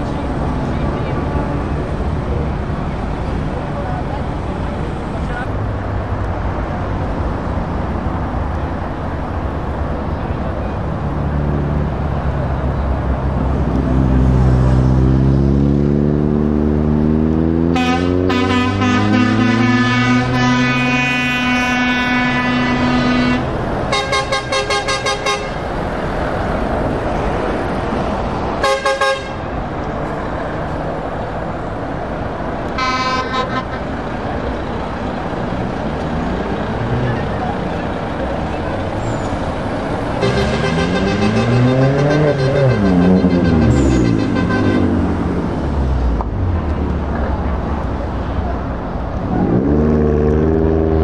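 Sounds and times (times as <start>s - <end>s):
diesel truck engine accelerating: 0.0s - 28.6s, 29.2s - 51.0s
truck horn: 17.6s - 25.7s, 28.6s - 29.5s, 32.7s - 34.0s, 40.1s - 45.2s.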